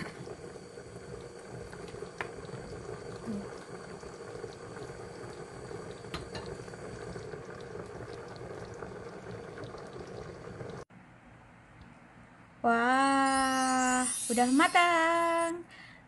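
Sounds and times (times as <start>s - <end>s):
curry bubbling in a pot: 0.0s - 10.9s.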